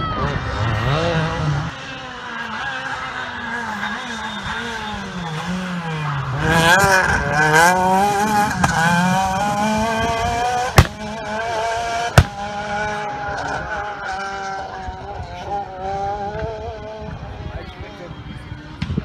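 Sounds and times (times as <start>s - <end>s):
rally car engine revving: 0.0s - 19.0s
sharp bangs: 10.7s - 11.2s, 12.1s - 12.8s.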